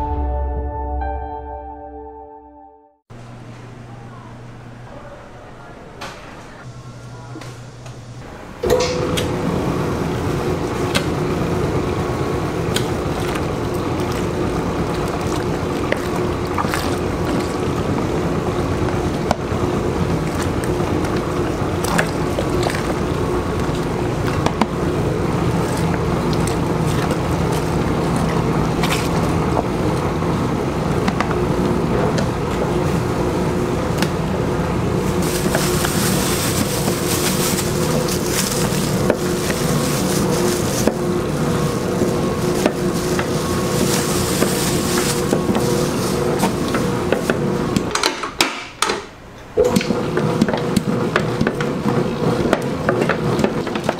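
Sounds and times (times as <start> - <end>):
dough mixer motor humming: 6.6 - 48.1, 49.6 - 53.9
egg pouring from plastic bag: 34.9 - 47.3.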